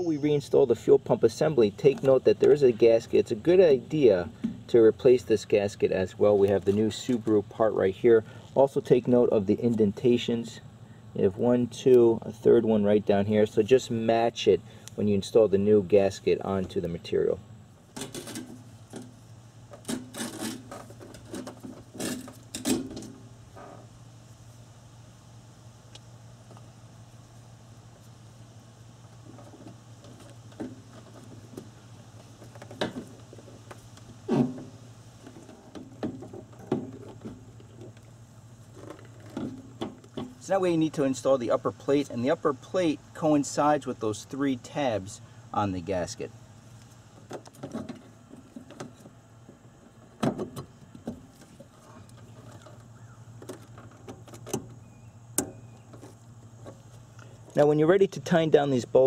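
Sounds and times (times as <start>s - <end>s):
steady low hum: 0.0s - 59.0s
parts knocking and rustling: 17.9s - 23.8s, 29.2s - 38.1s, 38.7s - 40.5s, 46.9s - 54.8s.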